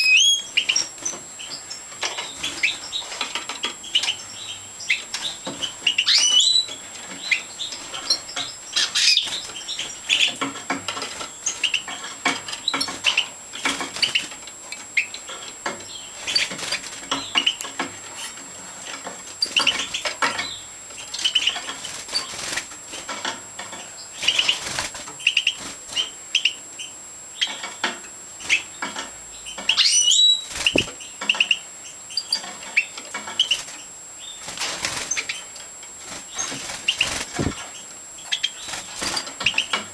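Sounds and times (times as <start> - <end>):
goldfinches chirping: 0.0 - 17.8, 19.4 - 22.4, 23.8 - 24.6, 25.2 - 27.7, 28.4 - 34.4, 36.2 - 39.9
small clicks of birds hopping: 0.6 - 26.1, 32.2 - 39.9
wing flutters: 34.4 - 37.8, 38.6 - 39.8.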